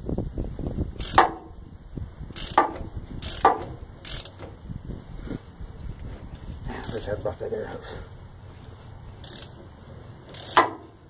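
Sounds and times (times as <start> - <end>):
ratchet wrench clicking: 1.0 - 1.5, 2.3 - 4.6, 6.8 - 7.1, 9.2 - 11.0.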